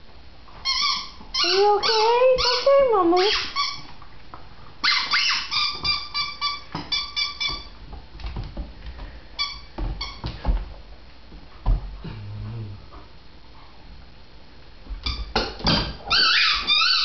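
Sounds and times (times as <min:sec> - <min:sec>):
dog whimpering: 0:01.4 - 0:03.5.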